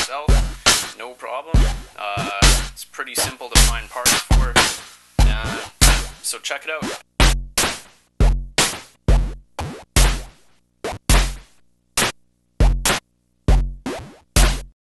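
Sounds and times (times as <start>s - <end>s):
bass drum thuds: 0.0s - 1.0s, 1.6s - 2.8s, 3.6s - 6.2s, 7.2s - 14.8s
electronic noise bursts: 1.6s - 7.0s.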